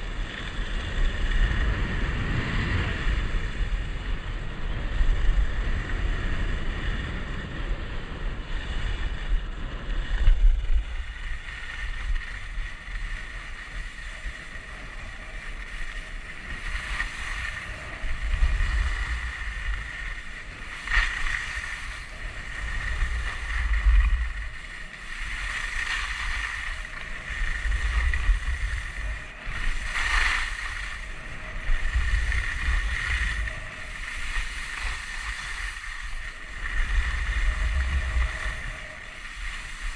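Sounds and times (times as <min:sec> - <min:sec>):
wind buffeting camera microphone: 0:00.0 - 0:39.9
ski edges scraping packed snow: 0:09.8 - 0:39.9.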